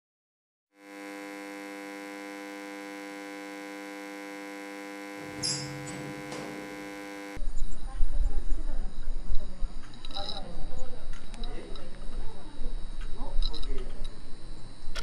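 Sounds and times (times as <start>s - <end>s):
steady droning hum: 0.8s - 7.5s.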